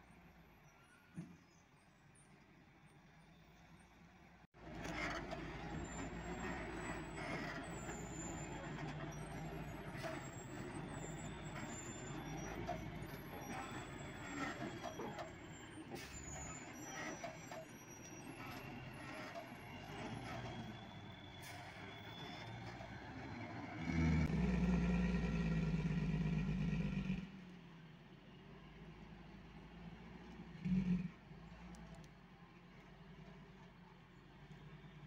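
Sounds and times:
truck engine running low speed: 0:00.0 - 0:35.0
short high squeals: 0:05.8 - 0:22.9.

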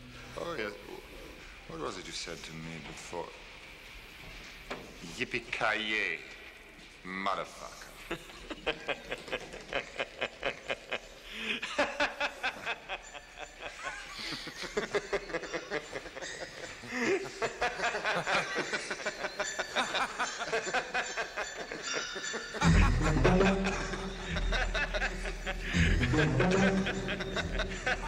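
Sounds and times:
man laughing hard: 0:08.1 - 0:28.0.

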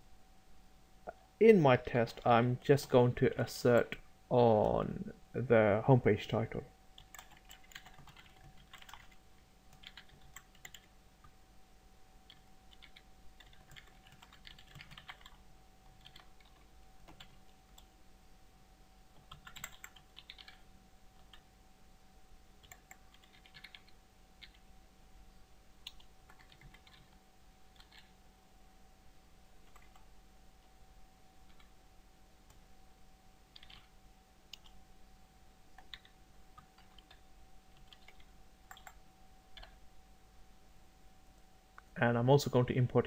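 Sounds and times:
keyboard typing: 0:07.0 - 0:10.9, 0:12.2 - 0:17.9, 0:19.1 - 0:21.4, 0:22.6 - 0:24.6, 0:25.8 - 0:28.1, 0:29.6 - 0:30.1, 0:31.4 - 0:31.7, 0:33.5 - 0:33.9, 0:34.5 - 0:34.8, 0:35.8 - 0:39.8.

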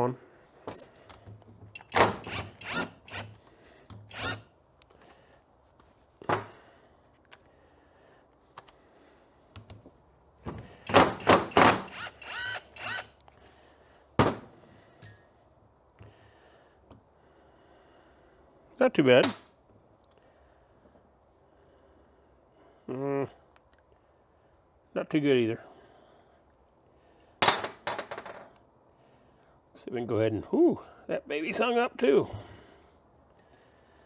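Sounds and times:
metal clink: 0:00.7 - 0:01.1, 0:15.0 - 0:15.4, 0:33.3 - 0:33.9
power driver bursts: 0:10.8 - 0:13.1.

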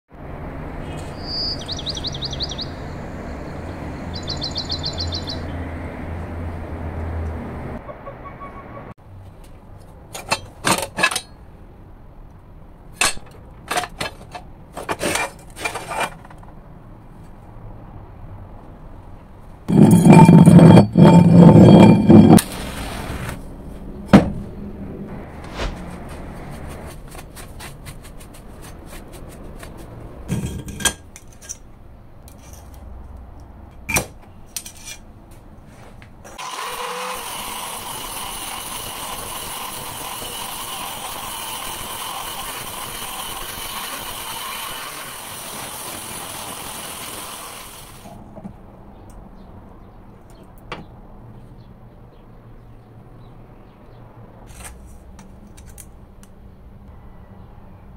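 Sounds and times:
scrap metal clanking: 0:10.1 - 0:11.4, 0:13.0 - 0:16.5, 0:19.7 - 0:23.0, 0:29.6 - 0:31.6
angle grinder cutting steel: 0:19.7 - 0:22.5, 0:36.3 - 0:48.0.

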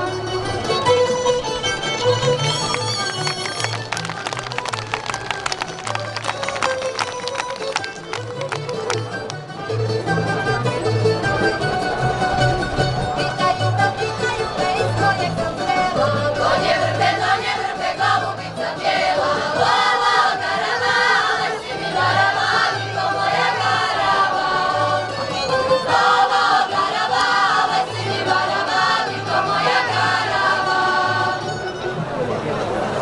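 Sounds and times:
string band playing: 0:00.0 - 0:33.0
women's choir singing folk song: 0:12.0 - 0:31.7.

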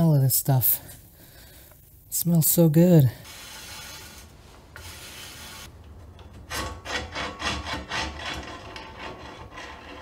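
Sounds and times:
faint steady hiss: 0:00.0 - 0:06.0
cutter scraping metal: 0:03.2 - 0:05.7, 0:06.5 - 0:10.0.

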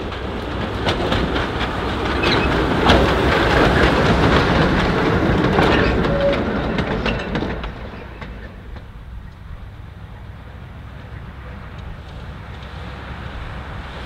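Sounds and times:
wheels clicking over rail joints: 0:00.0 - 0:14.0
wheel squeal: 0:02.1 - 0:03.1, 0:05.5 - 0:08.7.

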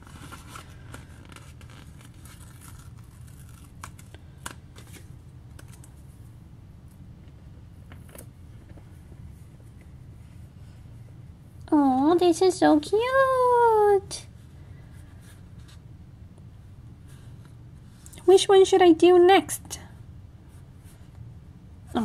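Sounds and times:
sticker peeling crackle: 0:00.0 - 0:06.0
steady low hum: 0:00.0 - 0:22.0.

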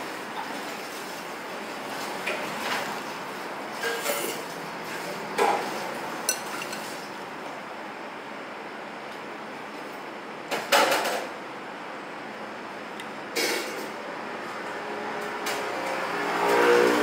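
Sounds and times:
steady background noise: 0:00.0 - 0:17.0
chopsticks clinking on ceramic bowl: 0:06.3 - 0:06.9.

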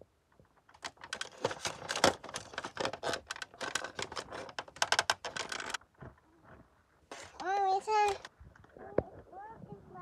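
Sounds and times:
hard plastic clicks and rattles: 0:00.4 - 0:06.2.

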